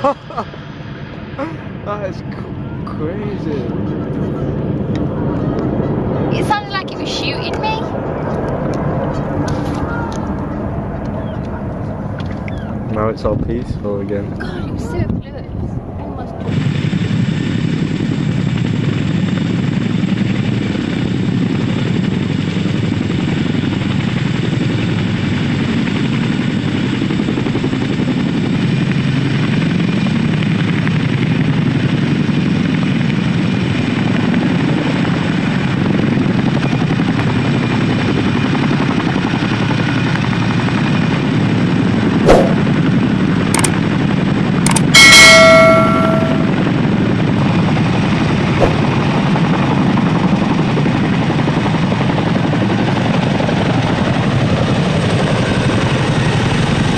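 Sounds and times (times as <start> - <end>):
helicopter rotor noise: 0.0 - 56.9
sharp clicks: 43.5 - 43.8, 44.7 - 44.9
ringing bell chime: 45.0 - 46.7.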